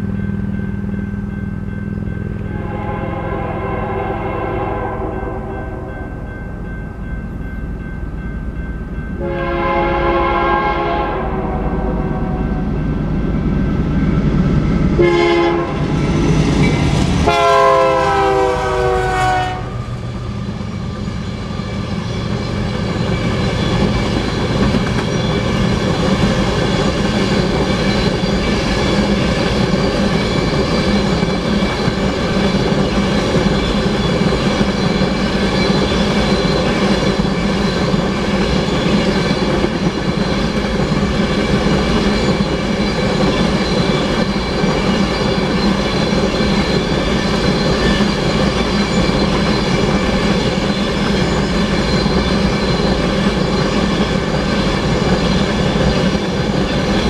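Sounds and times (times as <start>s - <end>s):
train rumble and wheel clatter: 0.0s - 57.0s
locomotive horn blasts: 2.4s - 6.1s, 9.2s - 12.6s, 15.0s - 15.9s, 17.2s - 19.9s.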